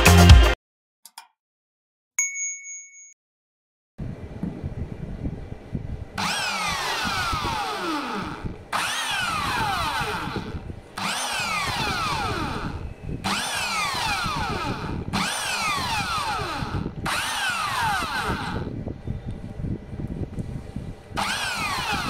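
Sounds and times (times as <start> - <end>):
impact wrench motor whine: 6.2 - 18.8, 21.2 - 22.0.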